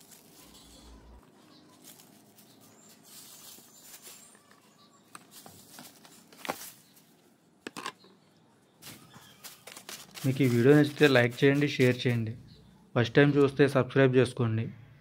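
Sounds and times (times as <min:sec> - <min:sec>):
dry leaves rustling: 0:00.0 - 0:07.3, 0:08.8 - 0:12.4.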